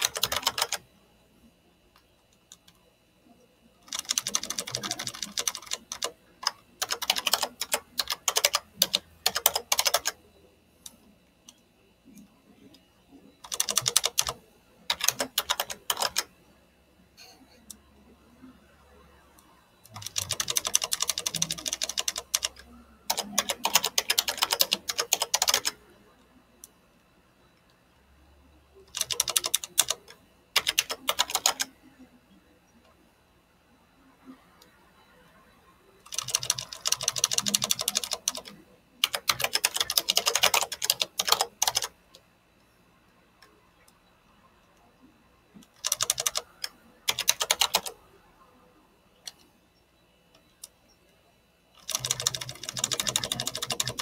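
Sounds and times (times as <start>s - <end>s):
typing on computer keyboard: 0.0s - 0.9s, 3.8s - 10.2s, 13.4s - 16.3s, 19.8s - 25.8s, 28.9s - 31.7s, 36.0s - 41.9s, 45.6s - 48.0s, 51.8s - 54.0s.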